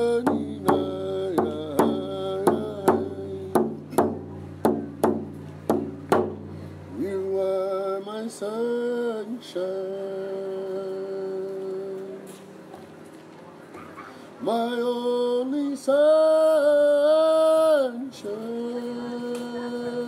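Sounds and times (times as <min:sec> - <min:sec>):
frame drum struck with beater: 0:00.0 - 0:07.4
man singing long notes: 0:00.0 - 0:12.2.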